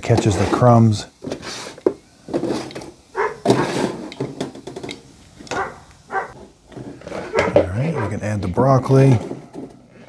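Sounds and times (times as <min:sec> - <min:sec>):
metal trays sliding on rails: 0:03.4 - 0:04.2.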